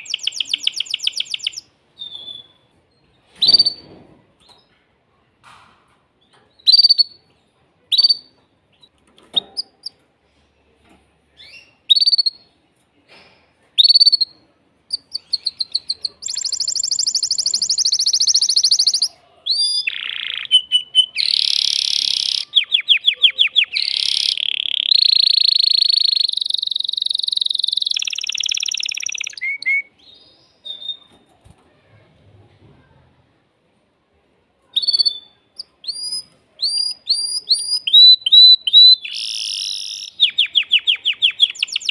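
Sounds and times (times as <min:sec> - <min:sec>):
canary chirping: 0:00.0 - 0:03.9, 0:06.2 - 0:10.0, 0:11.4 - 0:12.5, 0:13.8 - 0:31.2, 0:34.8 - 0:41.9
canary song of rapid trills: 0:14.9 - 0:29.7.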